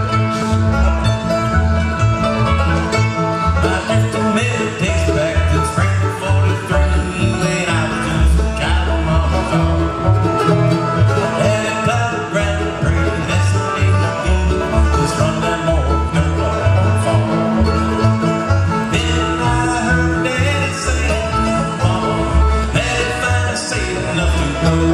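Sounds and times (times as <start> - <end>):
bluegrass band playing: 0.0 - 24.9
plucked upright bass: 0.0 - 24.9.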